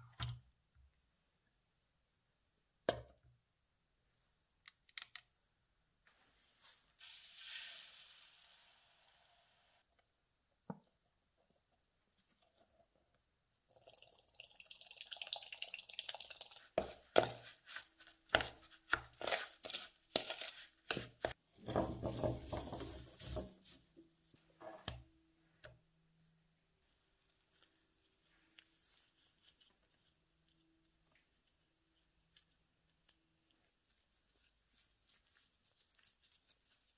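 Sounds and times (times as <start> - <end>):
dry ingredient poured into bowl: 6.6 - 9.2.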